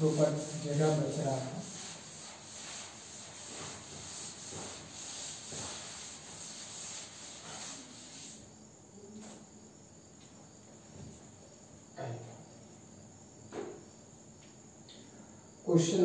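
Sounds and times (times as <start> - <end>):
cloth wiping blackboard: 0.0 - 8.5.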